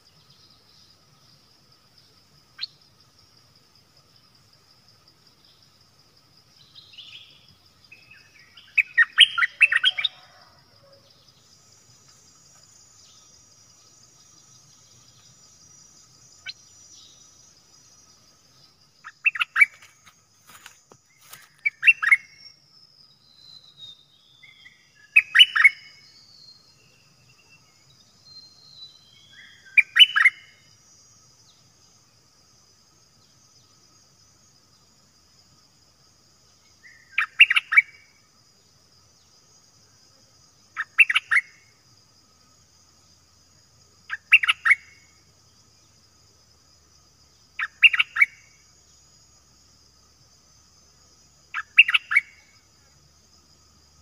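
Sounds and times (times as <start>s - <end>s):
high insect drone: 0.0s - 54.0s
bird chirping phrases: 6.5s - 20.0s, 21.2s - 30.7s, 36.8s - 38.0s, 40.7s - 41.6s, 44.1s - 45.0s, 47.5s - 48.5s, 51.5s - 52.5s.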